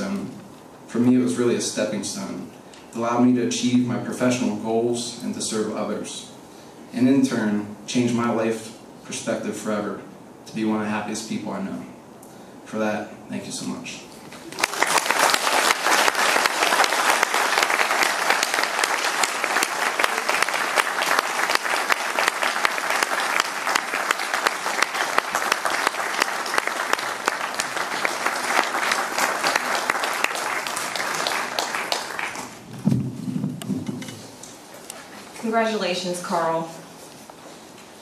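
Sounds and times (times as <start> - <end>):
audience applauding: 14.4 - 32.7.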